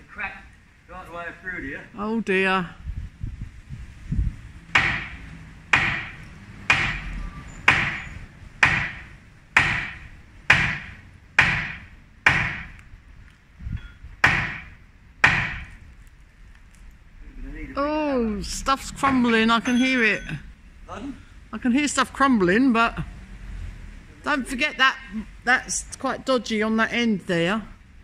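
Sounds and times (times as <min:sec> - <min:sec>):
hammer striking iron: 0:04.7 - 0:12.8, 0:13.8 - 0:15.8.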